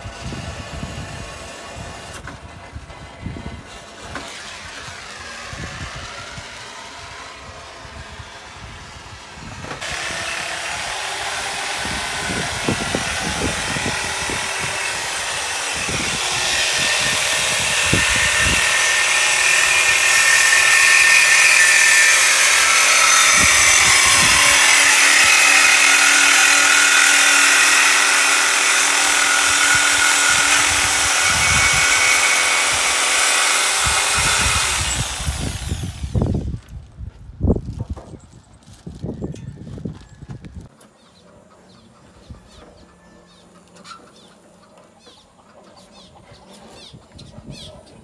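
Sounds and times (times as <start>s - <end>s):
angle grinder grinding metal: 3.0s - 36.6s.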